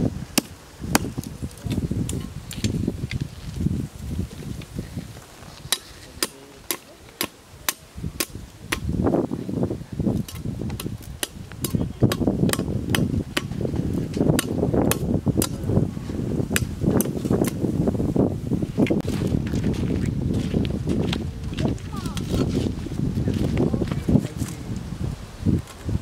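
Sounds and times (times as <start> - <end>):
hammering stake into ground: 0.3 - 2.7, 5.7 - 9.0, 10.2 - 15.7, 16.6 - 17.6
scuffing and rustling: 19.0 - 24.6.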